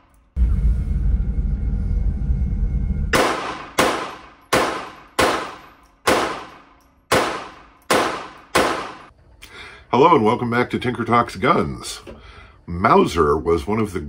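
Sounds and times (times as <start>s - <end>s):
low rumble: 0.0s - 4.5s
pistol shots echoing indoors: 3.1s - 9.1s.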